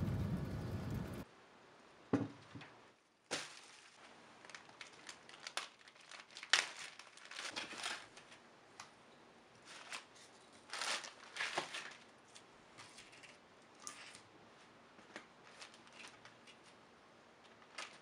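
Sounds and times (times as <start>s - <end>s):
plastic bags crinkling: 3.3s - 8.4s, 9.6s - 12.1s, 15.4s - 16.5s, 17.6s - 18.0s.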